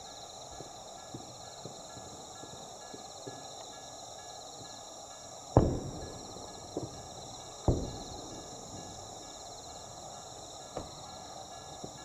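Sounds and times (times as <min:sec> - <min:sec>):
distant firework booms: 0:05.6 - 0:12.0.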